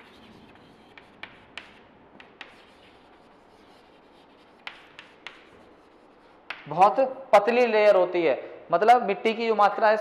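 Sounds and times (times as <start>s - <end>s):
chalk scratching on chalkboard: 0.0s - 6.7s
chalk tapping on board: 0.0s - 6.8s.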